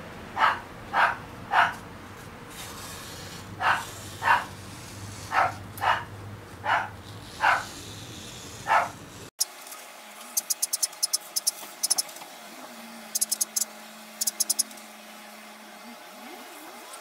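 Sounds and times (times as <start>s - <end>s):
dog barking: 0.4s - 1.8s, 3.6s - 4.5s, 5.3s - 7.7s, 8.6s - 9.0s.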